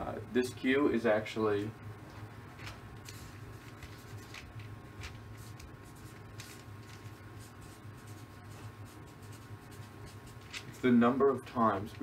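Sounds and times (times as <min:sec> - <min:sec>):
faint room hum: 0:00.0 - 0:12.0
marker scratching on paper: 0:05.0 - 0:11.0.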